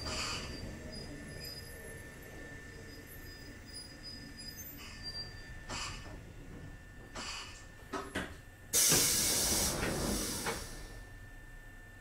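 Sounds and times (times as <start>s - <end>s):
train car low rumble: 0.0s - 12.0s
soft puff of hiss: 8.8s - 10.9s.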